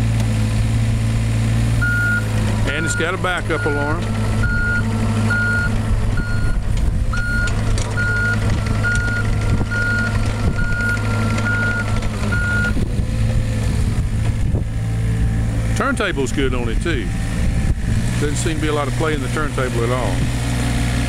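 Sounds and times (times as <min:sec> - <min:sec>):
diesel engine running: 0:00.0 - 0:21.0
backup alarm beeping: 0:01.8 - 0:12.8.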